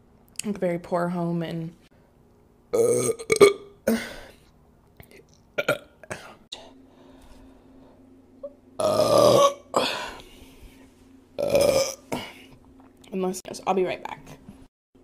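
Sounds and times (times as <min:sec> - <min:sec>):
woman burping: 0:02.8 - 0:04.3, 0:05.6 - 0:06.4, 0:08.4 - 0:10.2, 0:11.4 - 0:12.4.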